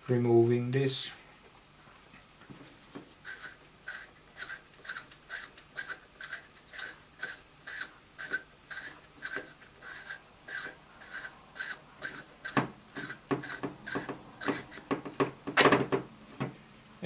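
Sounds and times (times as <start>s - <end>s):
rasping scrape of unscrewing: 3.2s - 15.3s.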